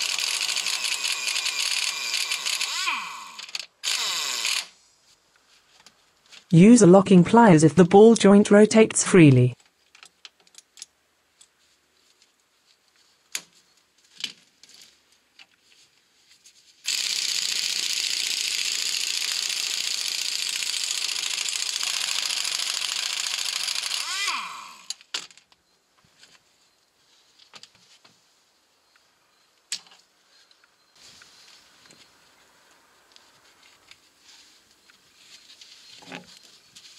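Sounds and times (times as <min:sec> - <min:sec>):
impact wrench running: 0:00.0 - 0:04.7, 0:16.9 - 0:24.9.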